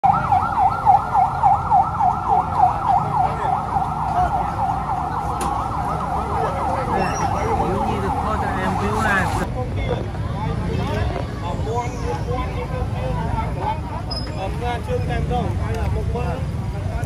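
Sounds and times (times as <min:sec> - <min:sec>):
emergency siren yelping: 0:00.0 - 0:09.5.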